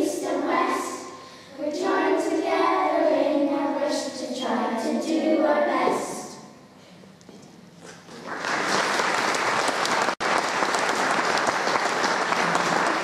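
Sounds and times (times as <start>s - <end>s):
congregation applauding: 8.0s - 13.0s.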